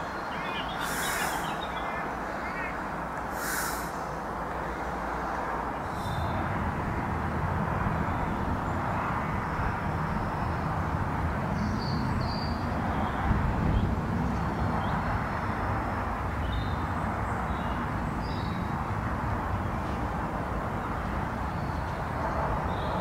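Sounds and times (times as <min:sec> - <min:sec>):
rustle: 0:00.0 - 0:06.4
rushing outdoor noise: 0:00.0 - 0:23.0.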